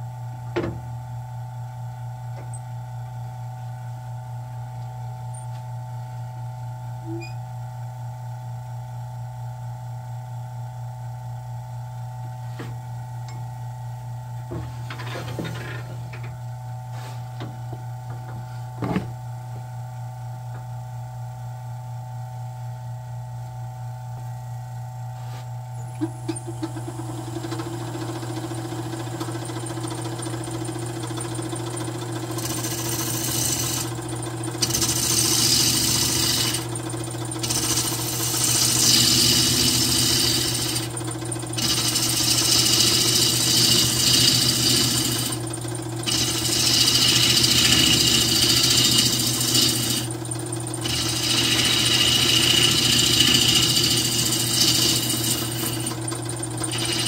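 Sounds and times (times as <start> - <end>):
wood lathe motor humming: 26.0 - 57.0
gouge shaving spinning wood: 26.7 - 57.0.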